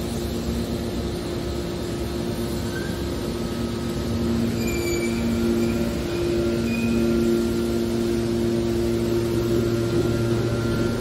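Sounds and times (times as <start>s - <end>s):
hydraulic pump humming and whining: 0.0s - 11.0s
faint high metallic squeaks: 2.6s - 3.1s, 4.4s - 7.3s.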